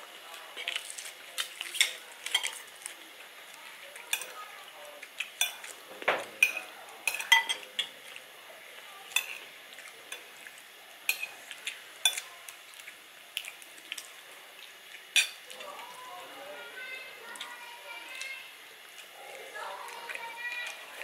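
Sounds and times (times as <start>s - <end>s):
cutlery and dishes clinking: 0.6s - 2.7s, 4.0s - 4.4s, 5.2s - 8.2s, 9.1s - 9.5s, 11.1s - 12.3s, 15.2s - 15.6s.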